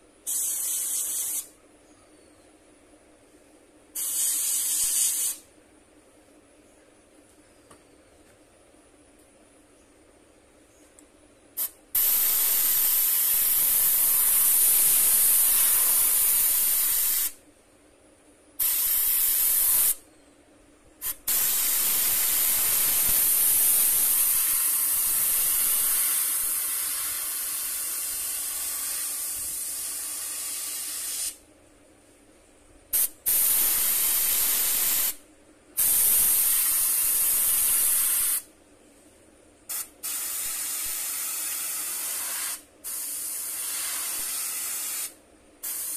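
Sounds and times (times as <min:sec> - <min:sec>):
airbrush air hiss: 0:00.2 - 0:01.6, 0:03.9 - 0:05.5, 0:11.6 - 0:17.4, 0:18.6 - 0:20.0, 0:21.0 - 0:31.4, 0:32.9 - 0:35.2, 0:35.8 - 0:38.5, 0:39.7 - 0:45.9.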